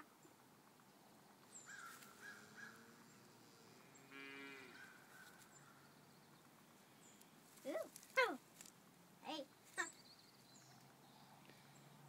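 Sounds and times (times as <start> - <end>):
cattle mooing: 4.0 - 4.8.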